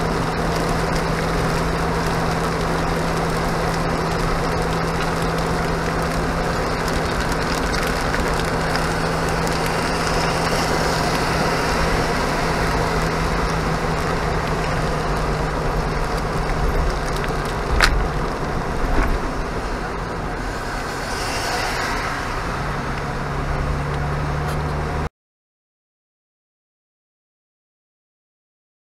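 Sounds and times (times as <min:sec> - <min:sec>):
car engine hum: 0:00.0 - 0:25.1
tyres and rain on wet road: 0:00.0 - 0:25.1.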